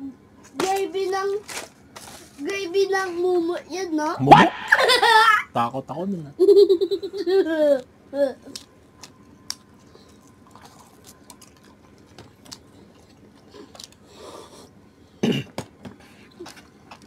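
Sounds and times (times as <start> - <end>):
close chewing: 9.8 - 14.1.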